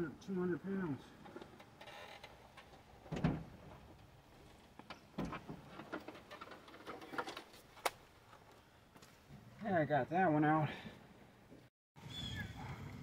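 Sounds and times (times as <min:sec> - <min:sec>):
lawnmower being unloaded: 0:01.2 - 0:07.8.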